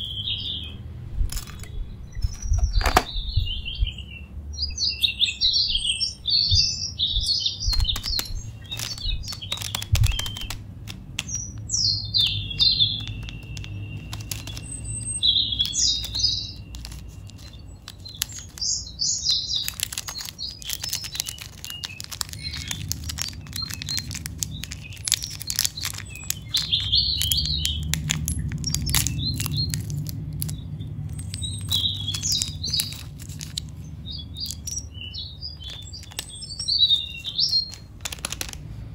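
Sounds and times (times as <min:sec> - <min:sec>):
low steady hum: 0:00.0 - 0:15.6
small birds chirping: 0:00.0 - 0:38.9
candy wrappers crinkling: 0:01.3 - 0:03.1, 0:07.6 - 0:38.9.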